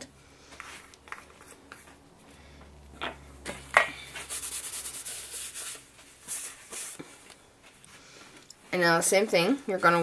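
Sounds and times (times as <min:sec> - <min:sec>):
scratchy rubbing strokes: 0:04.1 - 0:07.0.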